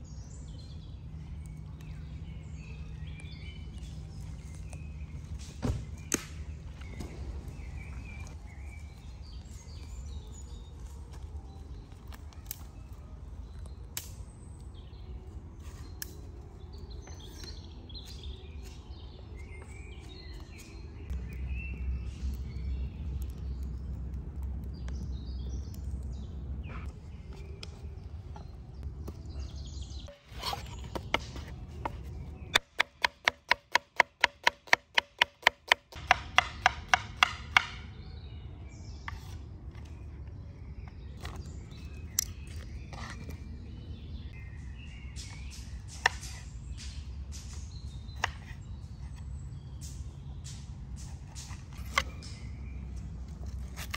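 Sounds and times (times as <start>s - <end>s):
birds chirping: 0.0s - 53.9s.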